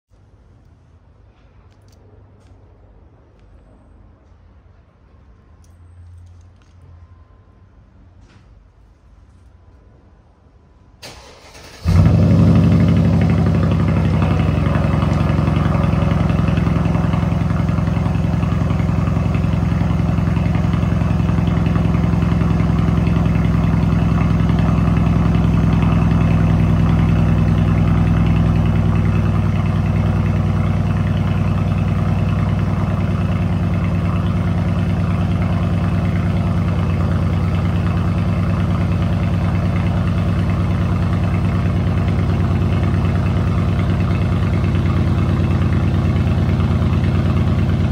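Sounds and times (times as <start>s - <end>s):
car engine cranking: 11.0s - 30.6s
car engine idling: 11.0s - 47.9s.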